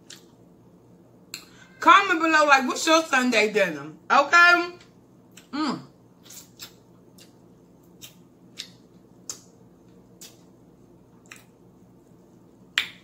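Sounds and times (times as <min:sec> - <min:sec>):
wet mouth smacks chewing: 0:06.2 - 0:09.5, 0:10.1 - 0:10.5, 0:11.2 - 0:11.6.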